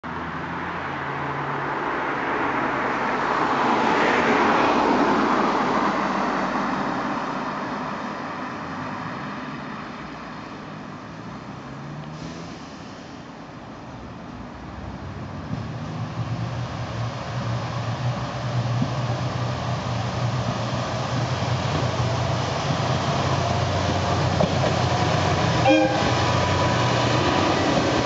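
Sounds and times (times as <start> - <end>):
vehicle passing by: 14.6 - 28.0.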